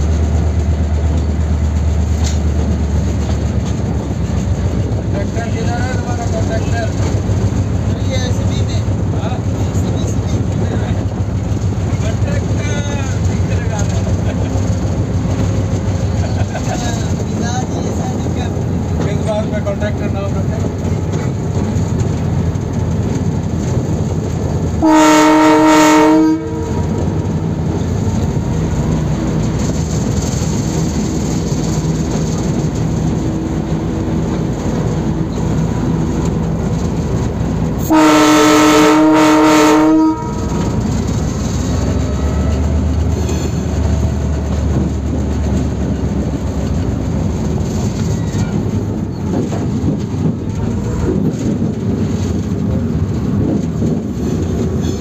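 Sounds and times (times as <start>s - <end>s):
locomotive engine running: 0.0s - 55.0s
train wheels on rails: 0.0s - 55.0s
locomotive horn blasts: 24.8s - 27.0s, 37.8s - 40.8s.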